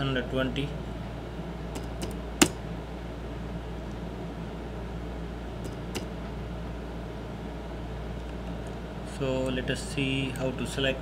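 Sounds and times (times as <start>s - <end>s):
low room hum: 0.0s - 11.0s
sharp click: 5.6s - 6.1s.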